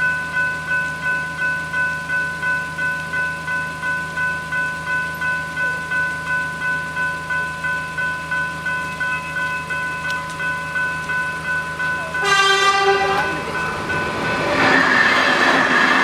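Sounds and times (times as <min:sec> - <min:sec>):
level crossing bells ringing: 0:00.0 - 0:16.0.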